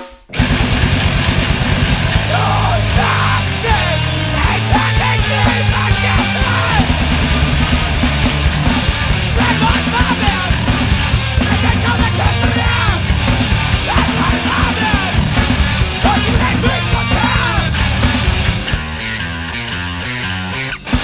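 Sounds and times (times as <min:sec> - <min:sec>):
punk band playing: 0:00.0 - 0:21.0
person yelling vocals: 0:02.2 - 0:07.0, 0:09.4 - 0:10.6, 0:11.4 - 0:13.1, 0:13.8 - 0:15.2, 0:16.0 - 0:17.8.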